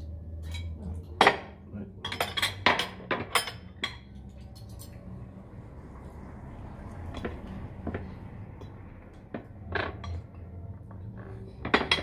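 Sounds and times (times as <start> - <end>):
cutlery clatter: 0.4 - 5.0, 11.6 - 12.0
cutlery clinking on plates: 0.4 - 5.0, 11.6 - 12.0.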